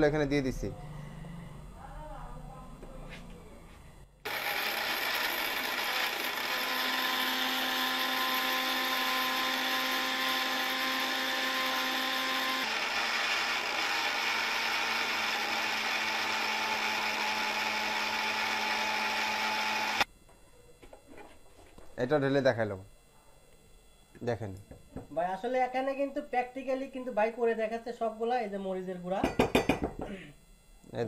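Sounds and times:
mixer grinder grinding chillies: 0:04.3 - 0:20.1.

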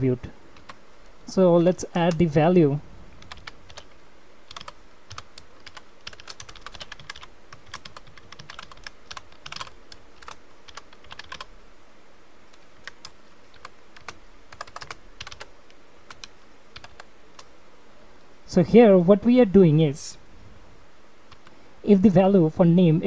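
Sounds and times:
computer keyboard typing: 0:03.2 - 0:11.5, 0:12.5 - 0:15.5, 0:16.1 - 0:17.5, 0:21.3 - 0:21.5.

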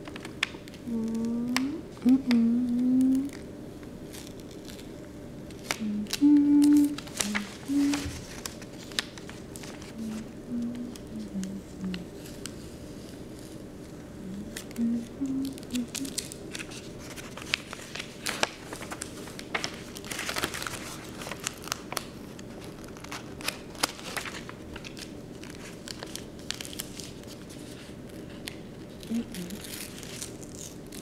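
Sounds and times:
paper sheets crinkling: 0:00.0 - 0:03.4, 0:04.0 - 0:31.0
adhesive tape peeling off paper: 0:14.5 - 0:31.0.

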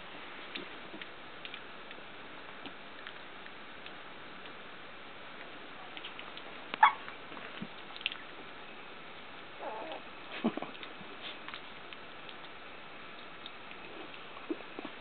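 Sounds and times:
puppies squeaking and whining: 0:06.8 - 0:07.0, 0:09.6 - 0:10.0.

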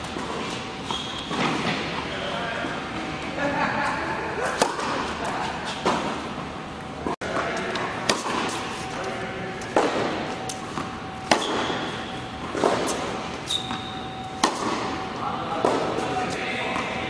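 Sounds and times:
racquet hitting tennis ball: 0:04.4 - 0:06.3, 0:07.3 - 0:08.9, 0:09.6 - 0:17.0.

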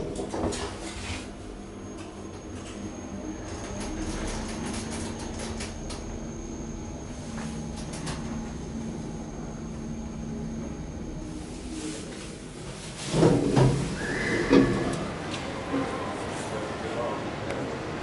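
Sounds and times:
lift low hum: 0:00.0 - 0:16.3
high-pitched whine: 0:01.5 - 0:12.7.

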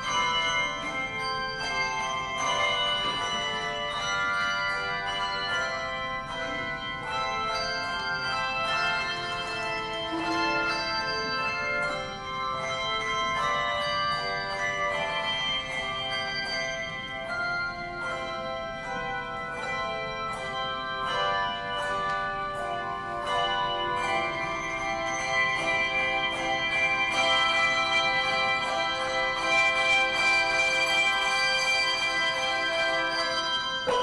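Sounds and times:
handbell choir playing: 0:00.0 - 0:34.0.

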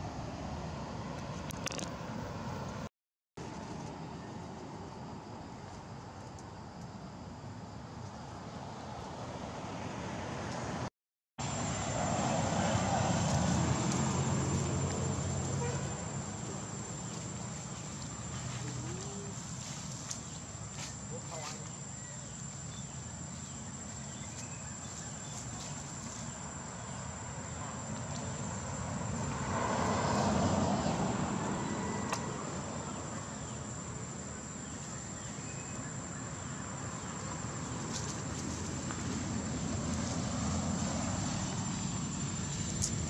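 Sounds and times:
motor vehicle passing: 0:08.6 - 0:21.5, 0:22.2 - 0:43.0.

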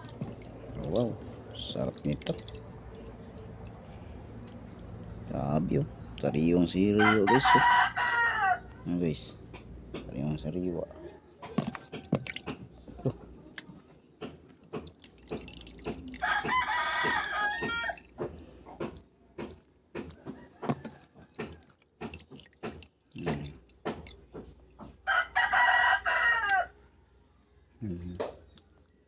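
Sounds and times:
water splashing and dripping: 0:00.0 - 0:06.3, 0:11.5 - 0:25.1
rooster crowing: 0:06.9 - 0:08.8, 0:16.2 - 0:18.0, 0:20.2 - 0:21.7, 0:25.0 - 0:26.8.

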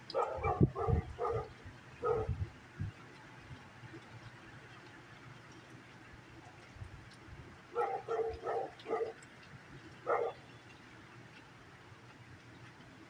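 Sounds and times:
dog barking: 0:00.1 - 0:02.4, 0:07.7 - 0:09.2, 0:10.0 - 0:10.4.

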